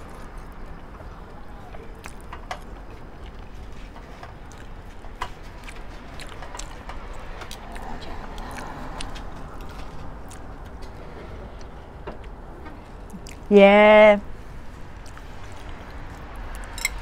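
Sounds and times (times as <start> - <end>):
chopsticks clicking on plates: 16.6 - 17.0.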